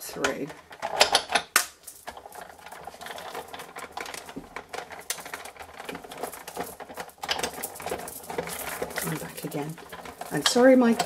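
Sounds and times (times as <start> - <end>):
bracelet charms jingling: 5.0 - 11.0.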